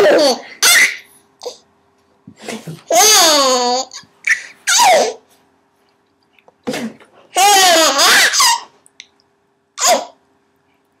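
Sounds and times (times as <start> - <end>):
baby laughing and squealing: 0.0 - 1.6, 2.9 - 5.2, 7.4 - 8.8.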